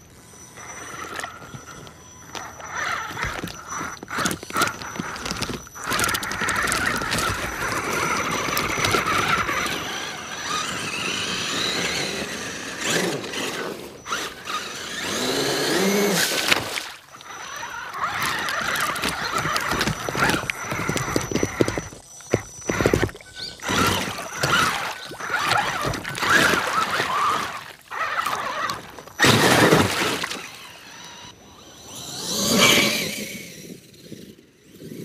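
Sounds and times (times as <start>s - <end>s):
toy truck motor whining: 0.0s - 35.0s
water splashing from tyres: 14.1s - 31.2s.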